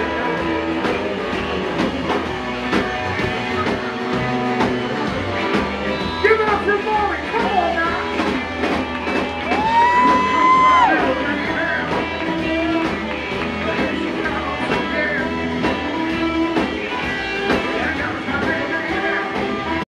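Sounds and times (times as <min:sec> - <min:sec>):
person singing: 0:00.0 - 0:01.6, 0:09.5 - 0:19.9
drum beat: 0:00.0 - 0:19.8
electric guitar: 0:00.0 - 0:19.8.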